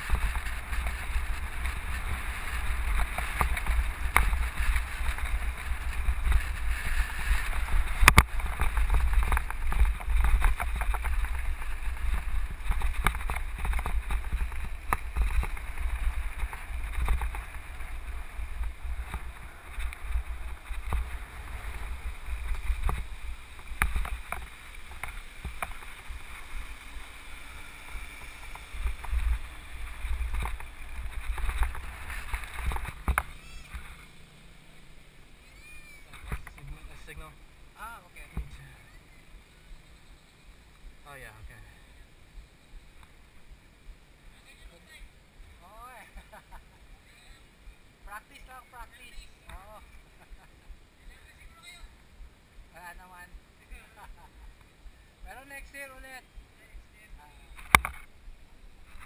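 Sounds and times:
wind rumbling on microphone: 0.0 - 34.2.

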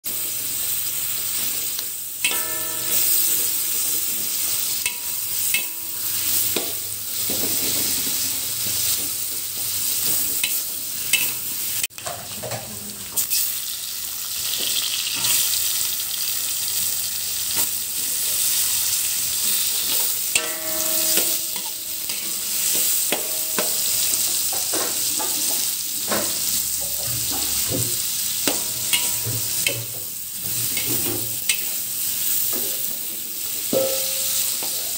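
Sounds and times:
vegetables sizzling in hot oil: 0.1 - 34.9
metal spatula scraping pan: 28.4 - 31.7.

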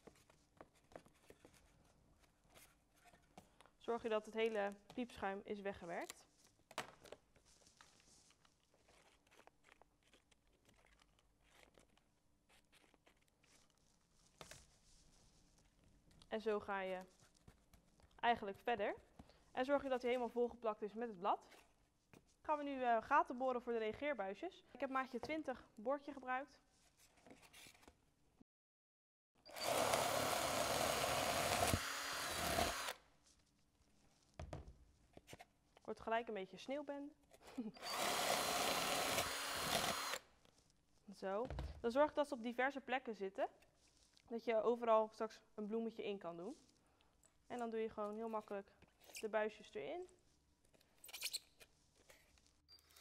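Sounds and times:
power drill drilling foam: 29.5 - 33.0, 37.8 - 40.2.

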